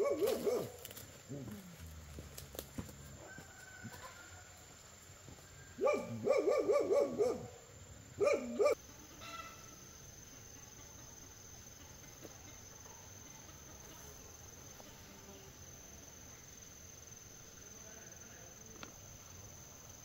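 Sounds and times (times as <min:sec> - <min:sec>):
insects chirring: 0:00.0 - 0:20.0.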